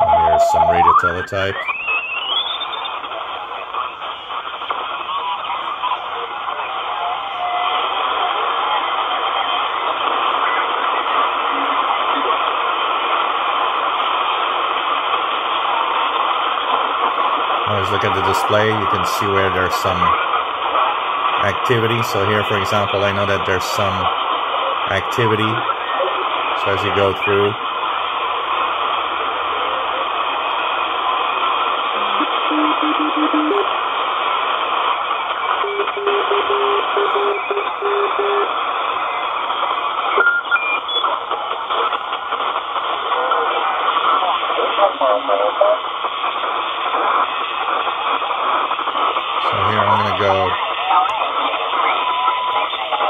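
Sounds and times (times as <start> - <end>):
radio tone rising into beeps: 0.0 - 3.0
shortwave radio static hiss: 0.0 - 53.0.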